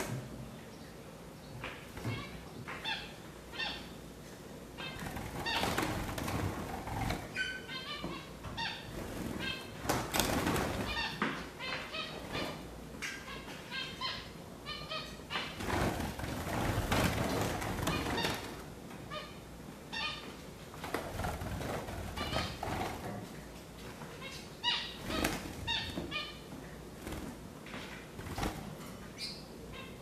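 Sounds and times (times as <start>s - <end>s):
wings flapping and rustling: 4.8s - 7.4s, 8.9s - 11.2s, 15.4s - 18.7s, 20.7s - 24.0s, 25.0s - 26.2s, 26.8s - 28.9s
finches chirping: 29.2s - 30.0s.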